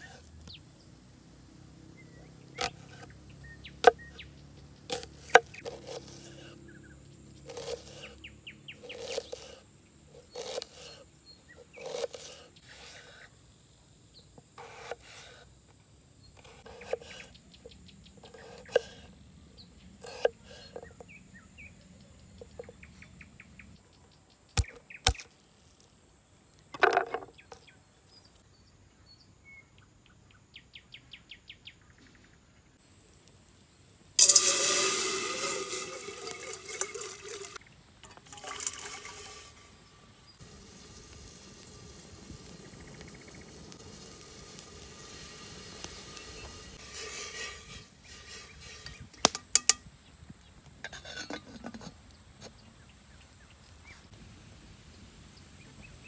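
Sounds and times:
knife slicing on wooden board: 10.3 - 11.0, 11.8 - 12.5
birds chirping: 41.8 - 46.8.

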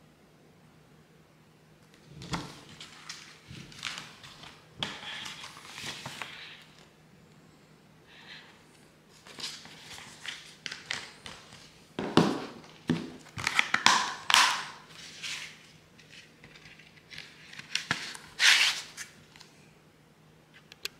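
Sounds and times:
paper and cardboard rustling: 2.2 - 6.9, 9.1 - 11.7, 12.3 - 19.2.

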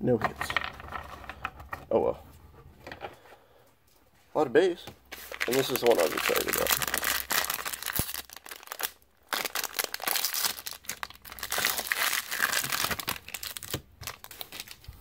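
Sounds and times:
plastic wrapper crinkling: 5.1 - 15.0.

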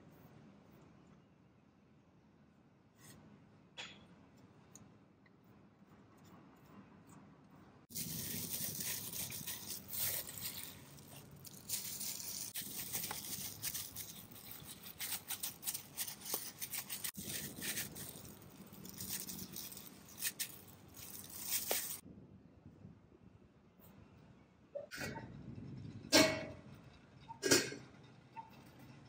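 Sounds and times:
plastic glove crinkling: 7.9 - 22.0
shredded taro rustling: 7.9 - 22.0.

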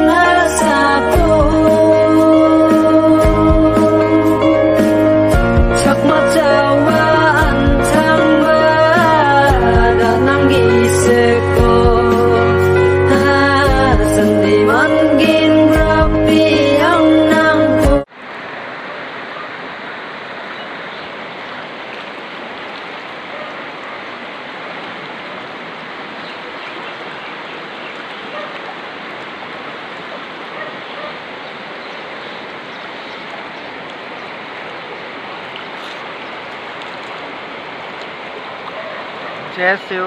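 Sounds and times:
floodwater rushing: 17.2 - 40.0.

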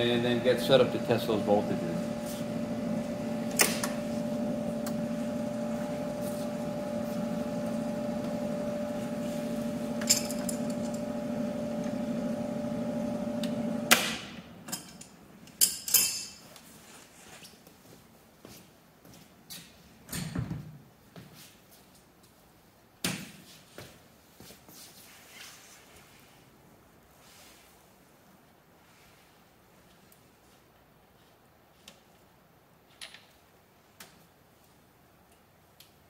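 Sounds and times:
lathe humming: 0.0 - 13.9.

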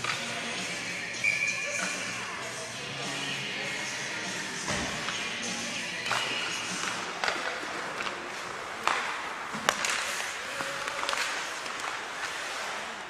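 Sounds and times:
hockey sticks and puck clacking: 0.0 - 13.0
skate blades scraping ice: 6.1 - 13.0.

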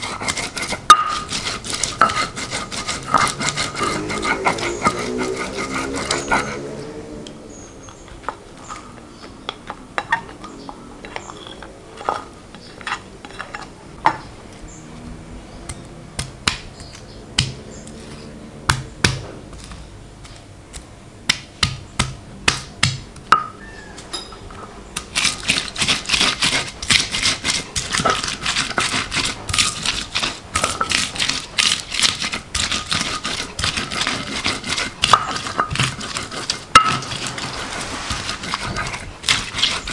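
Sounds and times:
spices ground on stone: 0.0 - 6.8, 25.0 - 39.9.

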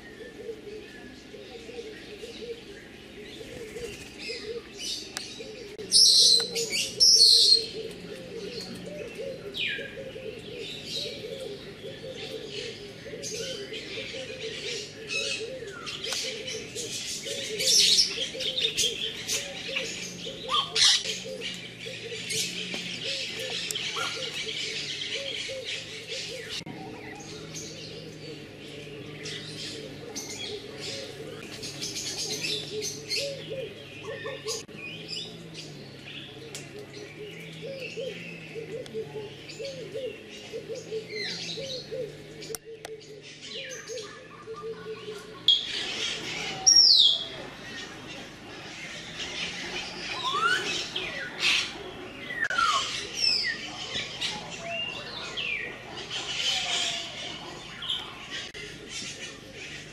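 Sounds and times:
birds chirping and calling: 0.0 - 59.9.

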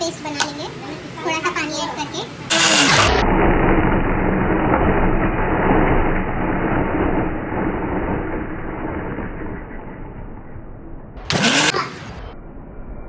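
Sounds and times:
electric mixer grinder running: 2.5 - 9.0, 11.3 - 11.7.

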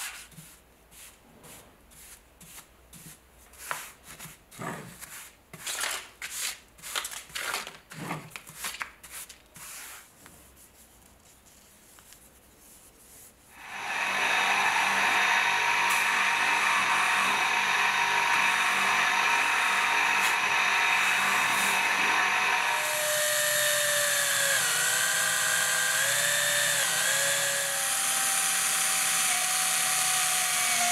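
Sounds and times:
paintbrush sweeping sawdust: 0.0 - 4.3, 9.0 - 10.9
electric bench motor running: 13.6 - 30.9.

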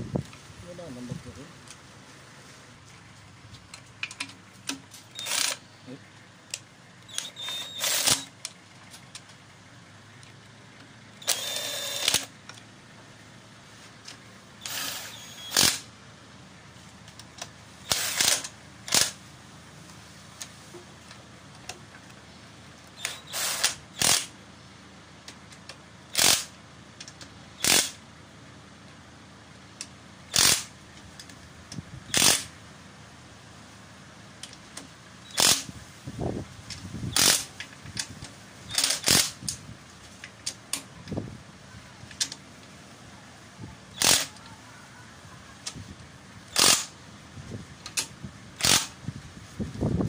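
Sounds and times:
socket wrench ratcheting: 7.1 - 8.4, 38.7 - 39.4.

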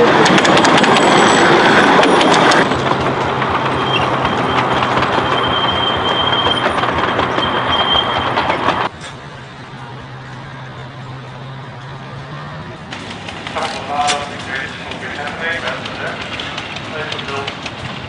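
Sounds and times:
miniature train wheels clattering: 0.0 - 8.9, 12.9 - 18.0
high wheel squeal: 0.7 - 2.7, 3.6 - 9.2.

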